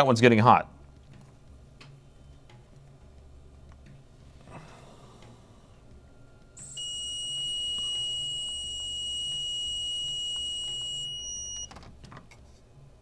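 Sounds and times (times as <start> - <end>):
electronic beep tone: 6.6 - 11.7.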